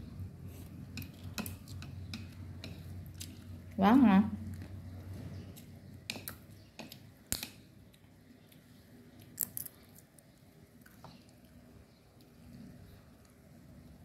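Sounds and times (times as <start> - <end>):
person chewing noodles: 0.3 - 3.8.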